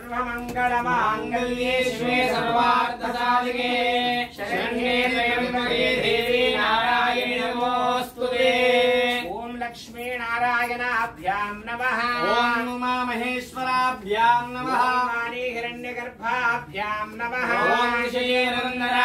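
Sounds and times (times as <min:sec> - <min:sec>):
melodic chanting: 0:00.0 - 0:09.4.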